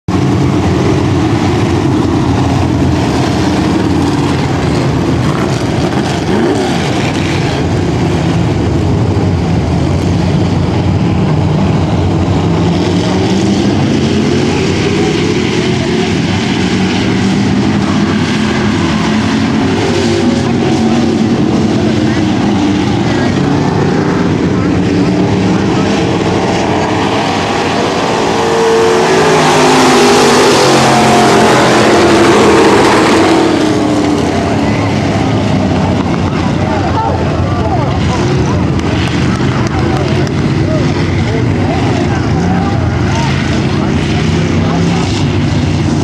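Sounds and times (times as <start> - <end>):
stock car engines racing: 0.0 - 46.0.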